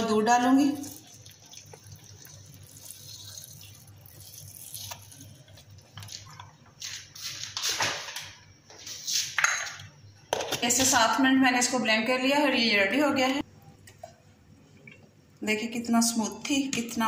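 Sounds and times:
milk pouring and splashing: 0.6 - 6.2.

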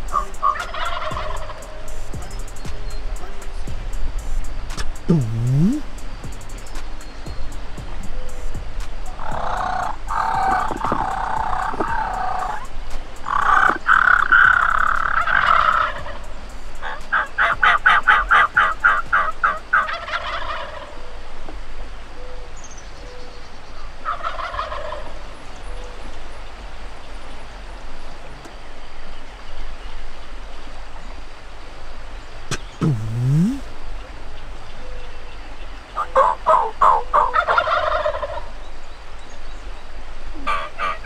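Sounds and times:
turkeys gobbling: 0.0 - 2.7, 9.1 - 21.1, 24.0 - 25.2, 36.0 - 38.5, 40.4 - 41.0.

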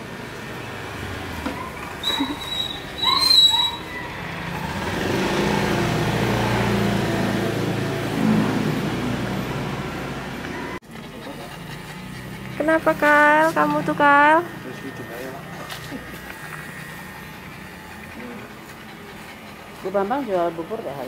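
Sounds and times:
electric clippers buzzing: 12.9 - 18.8.

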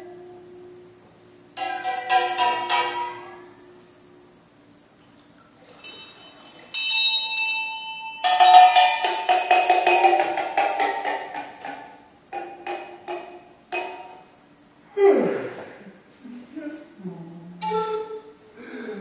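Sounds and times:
struck metal percussion ringing: 1.6 - 3.8, 5.8 - 11.3.

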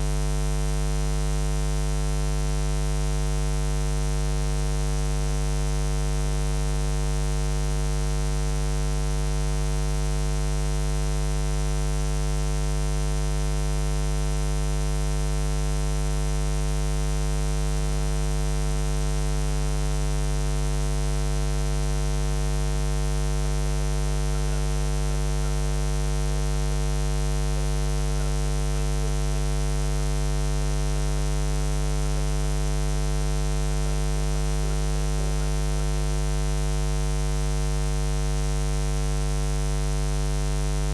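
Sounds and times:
electrical mains hum: 17.5 - 38.2.

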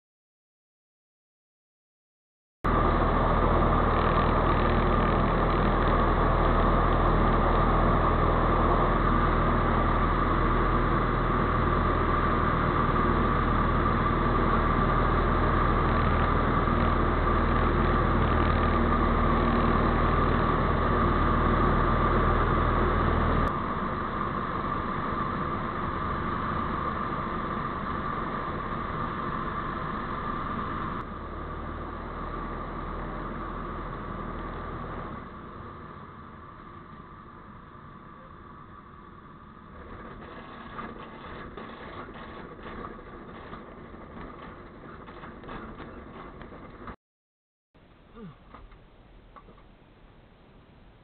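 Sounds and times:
ultralight aircraft engine and propeller: 2.7 - 47.0.

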